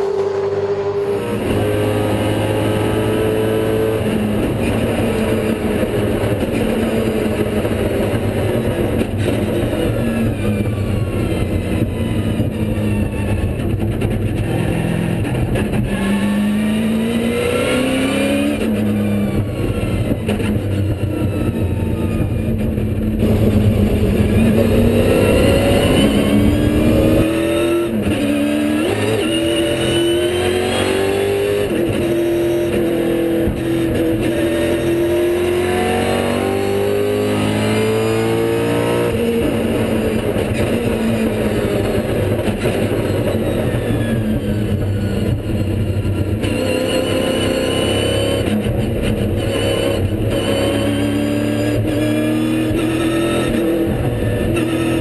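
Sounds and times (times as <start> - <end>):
racing car engine accelerating: 0.0 - 55.0.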